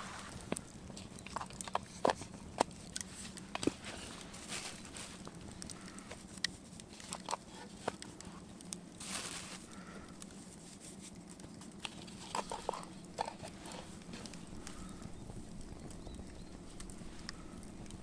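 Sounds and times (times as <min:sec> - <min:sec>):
campfire crackling and popping: 0:00.0 - 0:18.0.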